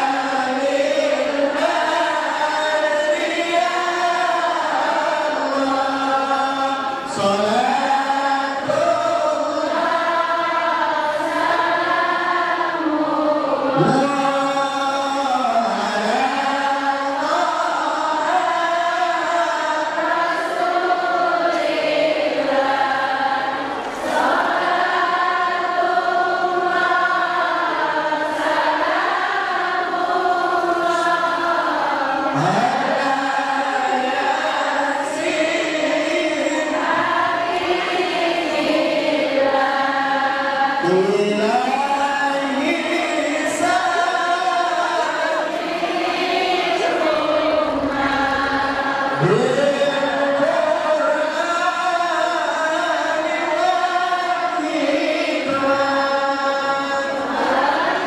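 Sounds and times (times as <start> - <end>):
man singing into microphone: 0.0 - 11.8, 12.7 - 21.6, 30.2 - 38.6, 40.5 - 45.6, 46.4 - 58.0
group chanting in unison: 0.0 - 58.0.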